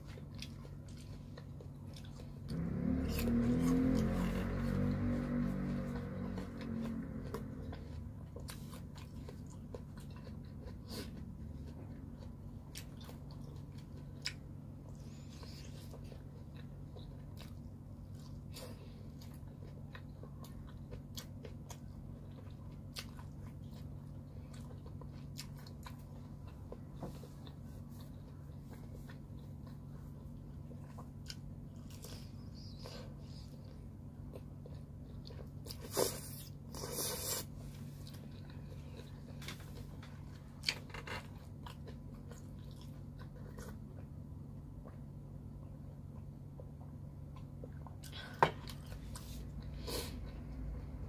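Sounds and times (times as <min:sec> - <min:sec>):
low hum: 0:00.0 - 0:35.8
crunching and chewing: 0:00.0 - 0:51.0.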